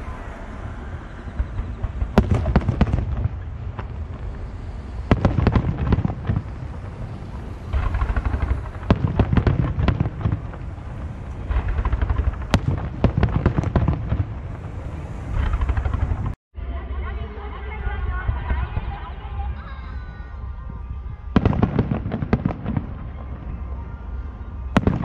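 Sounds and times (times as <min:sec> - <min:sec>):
firework crackling: 0:00.0 - 0:16.4.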